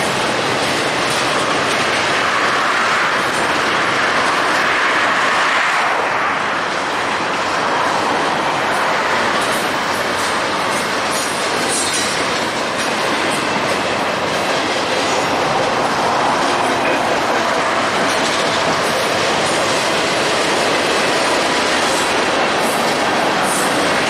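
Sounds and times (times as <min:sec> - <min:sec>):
train wheels clattering on rail: 0:00.0 - 0:24.0
wheels clicking over rail joints: 0:06.6 - 0:24.0.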